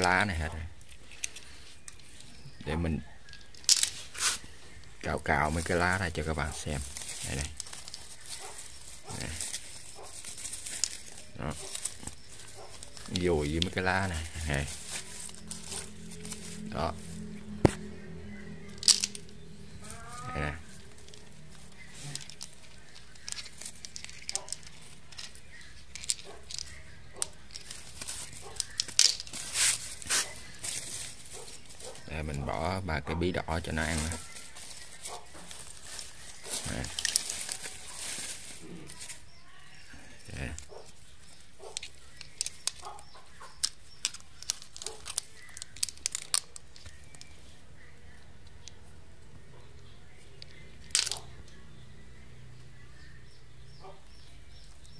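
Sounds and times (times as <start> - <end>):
dry leaves rustling: 0.0 - 47.9
snail shells clicking together: 4.7 - 32.1, 39.0 - 51.7
sharp crunch: 5.6 - 32.5.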